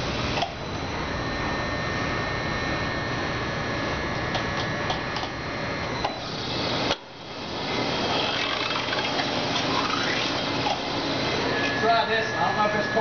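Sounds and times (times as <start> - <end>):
conveyor machine whirring: 0.0 - 13.0
faint high whine: 5.4 - 13.0.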